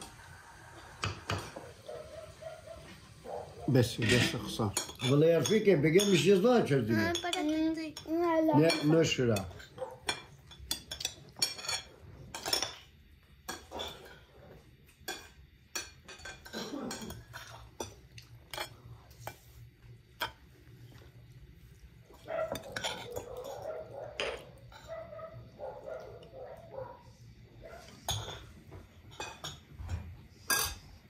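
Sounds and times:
cutlery clinking on ceramic plates: 3.9 - 6.3, 7.1 - 14.3, 14.9 - 19.4, 22.2 - 25.0, 28.0 - 31.0.

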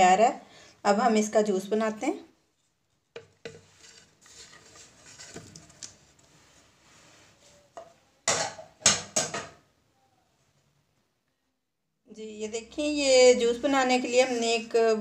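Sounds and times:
kitchenware clattering: 7.8 - 9.6.

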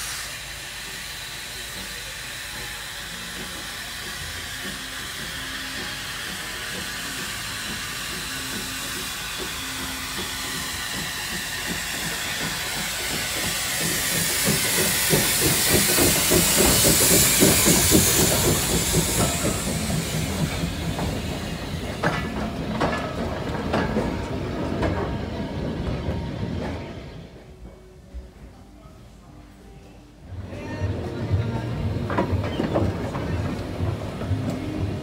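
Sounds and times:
steam hiss: 0.0 - 27.1
steam locomotive exhaust beats: 0.0 - 28.3, 30.2 - 35.0
carriage wheels clicking over rail joints: 3.3 - 26.0, 30.9 - 35.0.

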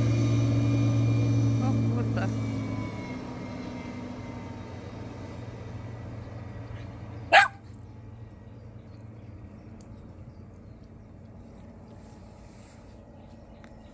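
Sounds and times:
motorboat engine droning: 0.0 - 13.9
dog bark: 7.3 - 7.6.

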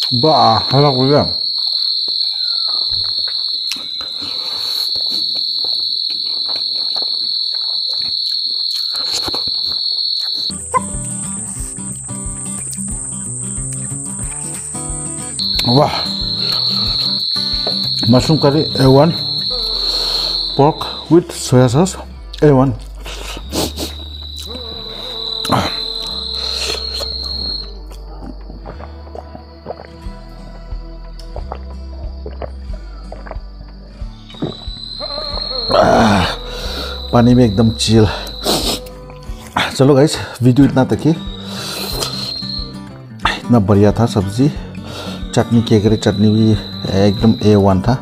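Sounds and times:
insects trilling: 0.0 - 43.1, 43.8 - 48.0
person chewing noisily: 1.5 - 11.2, 15.4 - 21.0, 22.8 - 30.2, 31.2 - 37.6, 41.3 - 42.4
high-pitched whine: 10.4 - 28.6, 34.4 - 39.2
background music with slow bass: 10.5 - 48.0.

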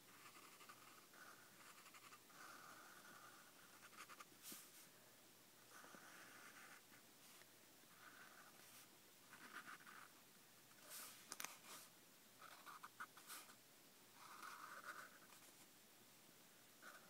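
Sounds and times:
marker scratching on paper: 0.2 - 4.7, 8.0 - 10.1, 14.2 - 15.5.

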